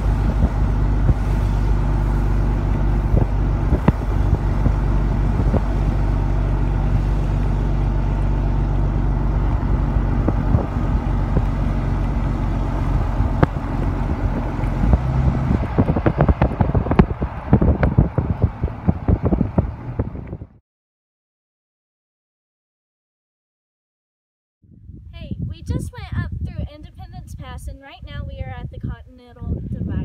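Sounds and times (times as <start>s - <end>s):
tyre and wind noise: 0.0s - 20.6s, 24.7s - 30.0s
vehicle engine running: 0.0s - 20.6s
wind buffeting microphone: 0.0s - 20.6s, 24.7s - 30.0s.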